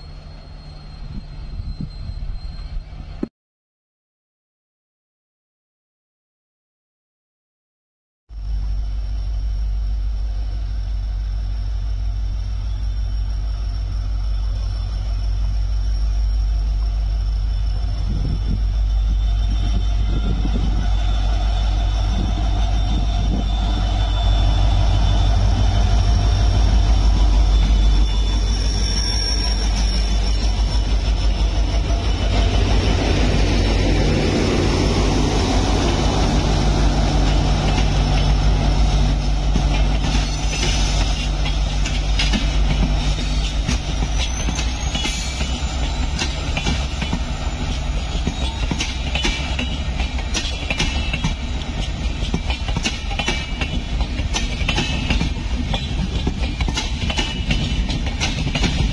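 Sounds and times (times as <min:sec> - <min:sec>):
diesel locomotive engine drone: 0:00.0 - 0:03.3, 0:08.3 - 0:58.9
train passing: 0:08.3 - 0:58.9
rail clatter: 0:19.6 - 0:58.9.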